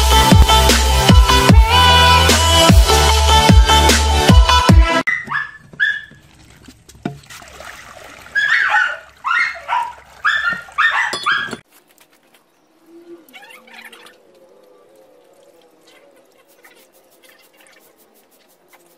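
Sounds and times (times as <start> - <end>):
electronic music with heavy beat: 0.0 - 5.0
dog whimpering and yipping: 8.4 - 11.6.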